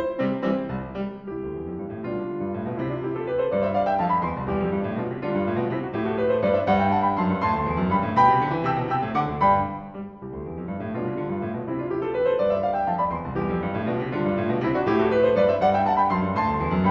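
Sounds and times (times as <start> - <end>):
piano music: 0.0 - 16.9.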